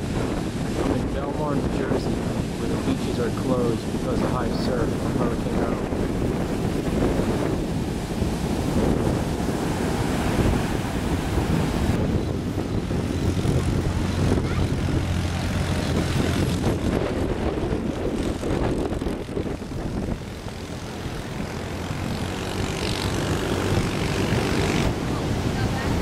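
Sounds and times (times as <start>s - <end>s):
heavy surf breaking: 0.0s - 26.0s
low engine drone: 0.0s - 26.0s.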